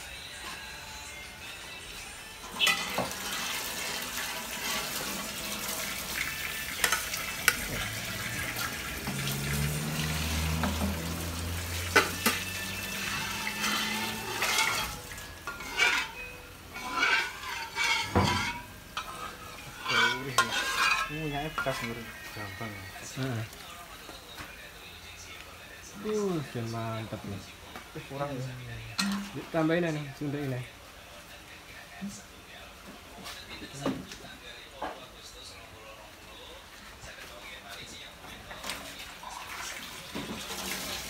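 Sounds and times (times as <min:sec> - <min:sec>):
broth sizzling and bubbling: 0:02.6 - 0:19.0
metal spoon clinking on pan: 0:13.3 - 0:22.0, 0:29.0 - 0:29.3.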